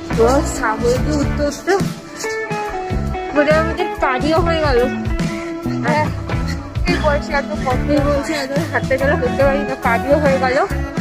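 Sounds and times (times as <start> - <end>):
guitar background music: 0.0 - 11.0
person singing: 5.3 - 8.9.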